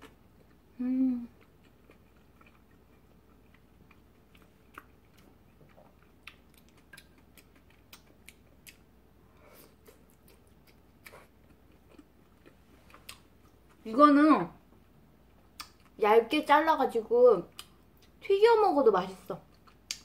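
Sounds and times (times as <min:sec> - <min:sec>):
faint chewing: 0:00.0 - 0:13.9, 0:14.8 - 0:16.0, 0:19.4 - 0:20.0
wet mouth clicks and smacks: 0:15.6 - 0:15.9, 0:19.7 - 0:20.0.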